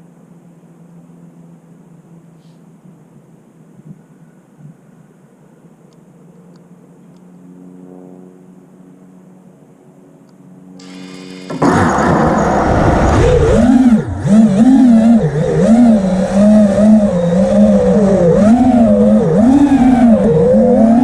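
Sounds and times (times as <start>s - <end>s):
quadcopter motors whining: 10.8s - 21.0s.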